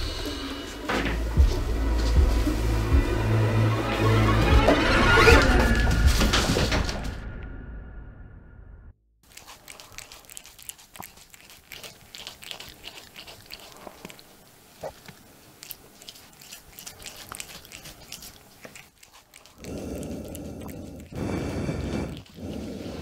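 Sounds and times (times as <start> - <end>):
cat crunching food: 9.2 - 23.0.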